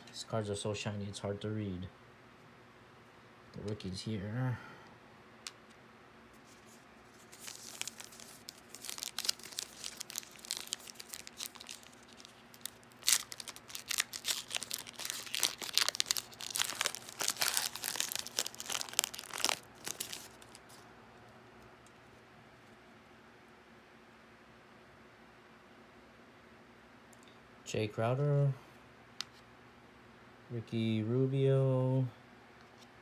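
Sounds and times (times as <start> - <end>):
foil wrapper crinkling and tearing: 6.4 - 20.8.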